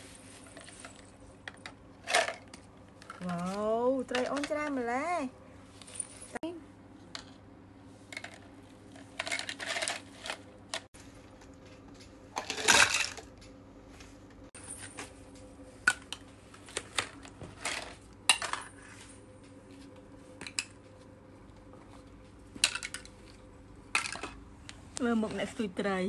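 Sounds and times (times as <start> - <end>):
plastic toys clattering: 0.4 - 4.8, 8.1 - 10.9, 12.4 - 13.3, 15.9 - 18.8, 22.6 - 24.4.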